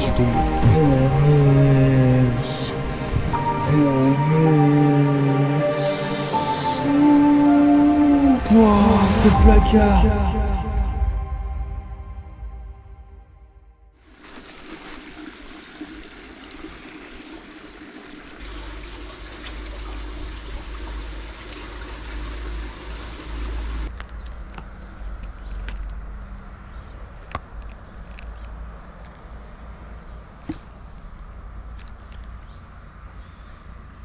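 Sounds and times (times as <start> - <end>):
low rumble: 6.9 - 14.0
river water rushing: 14.0 - 23.9.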